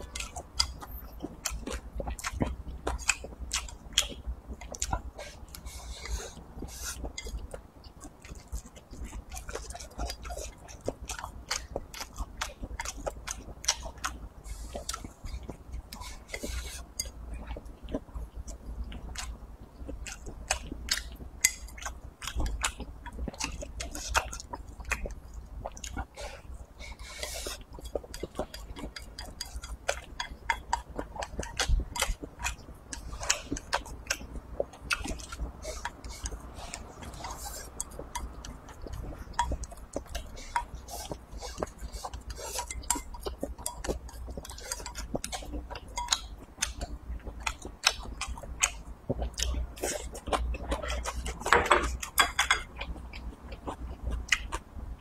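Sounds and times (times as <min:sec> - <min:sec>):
person chewing crunchy food: 0:00.0 - 0:55.0.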